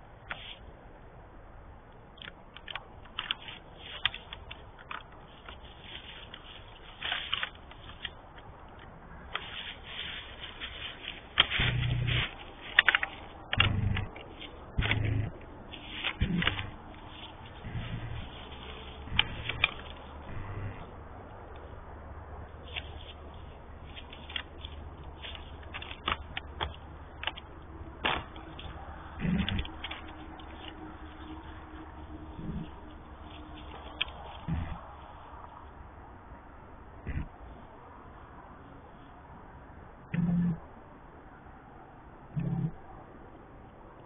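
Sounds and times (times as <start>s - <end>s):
deer rustling through dry leaves: 2.7s - 36.4s
steps through dry leaves: 5.2s - 8.0s, 9.3s - 20.9s
deer grunting: 8.8s - 21.1s, 24.4s - 35.0s, 37.0s - 37.6s, 40.1s - 40.7s, 42.3s - 42.9s.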